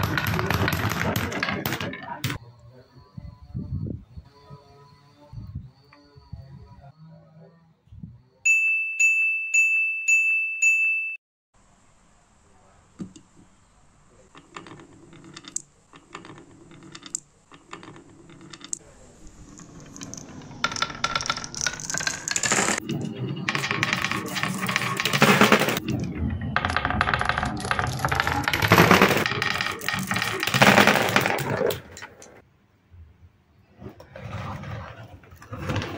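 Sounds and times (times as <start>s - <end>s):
glass marbles rattling down wood: 0.0s - 2.4s, 14.5s - 32.2s.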